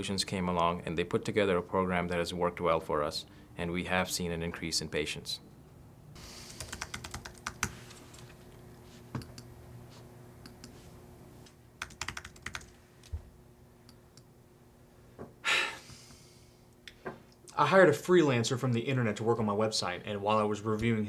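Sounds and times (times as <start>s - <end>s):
faint steady hum: 0.0s - 21.0s
typing on keyboard: 6.6s - 7.8s, 11.8s - 12.7s.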